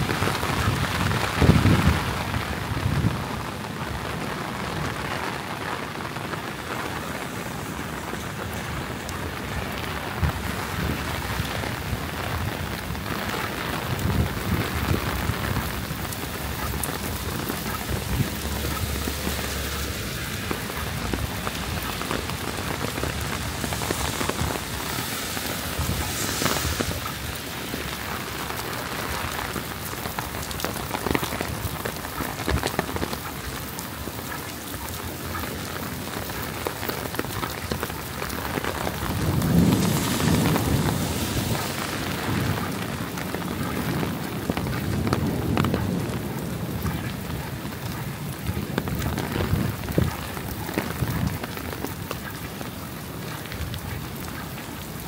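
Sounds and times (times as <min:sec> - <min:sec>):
heavy rain: 0:00.0 - 0:55.0
distant thunder rumbles: 0:38.5 - 0:51.7.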